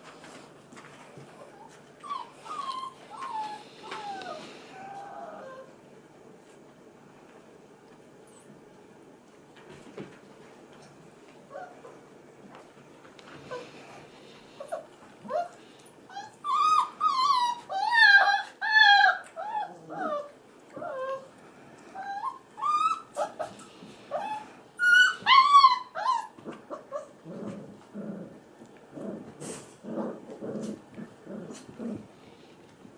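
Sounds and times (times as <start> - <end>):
puppies whining and crying: 1.2 - 5.8, 14.6 - 21.3, 21.9 - 27.9.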